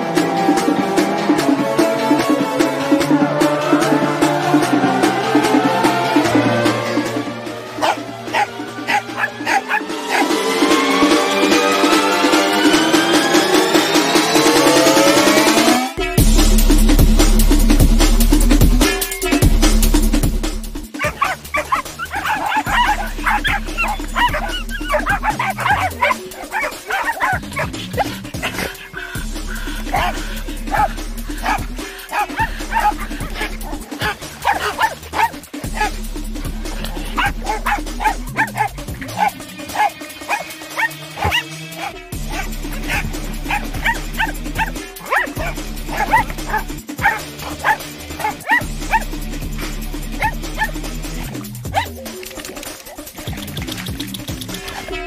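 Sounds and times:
background music with a beat: 0.0 - 55.0
dogs yipping and whining: 7.8 - 10.6, 20.9 - 36.0, 36.7 - 53.5.

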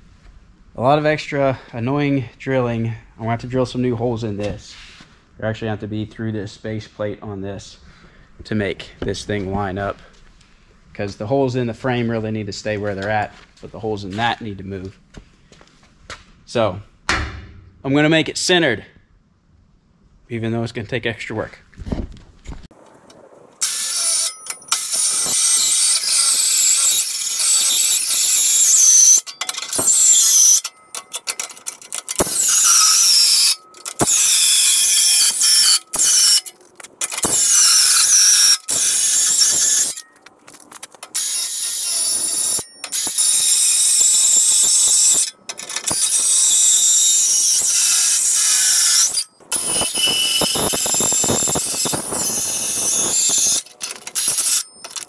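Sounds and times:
power tool squealing on metal: 23.6 - 40.2, 41.1 - 55.0.

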